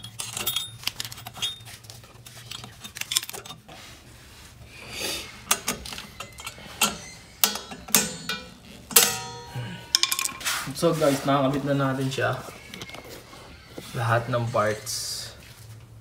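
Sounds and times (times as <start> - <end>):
metal clicks and clinks: 0.0 - 3.6, 5.5 - 10.4
metal scrape: 0.0 - 15.3.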